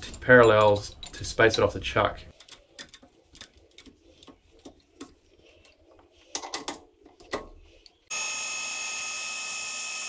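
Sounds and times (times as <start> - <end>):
metal clicks and knocks: 0.0 - 5.2, 6.3 - 7.6
lathe whining: 8.1 - 10.0.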